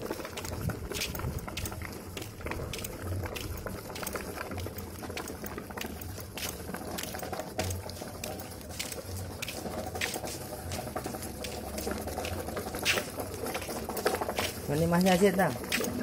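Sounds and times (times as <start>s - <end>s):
cardboard toy dragged over cobblestones: 0.0s - 16.0s.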